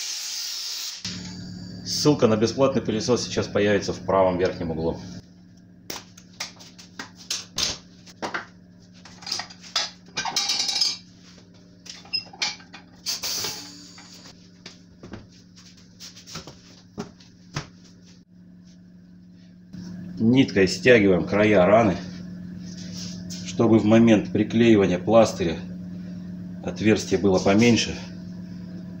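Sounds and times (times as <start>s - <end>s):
steady low hum: 1.1s - 29.0s
metal tools clattering: 9.1s - 11.1s, 11.9s - 13.0s.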